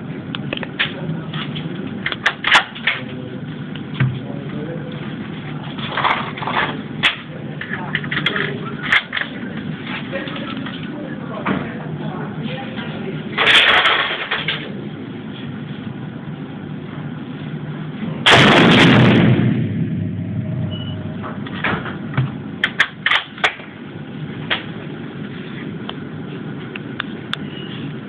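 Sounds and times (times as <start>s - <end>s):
rifle shot echoing indoors: 18.2s - 20.4s.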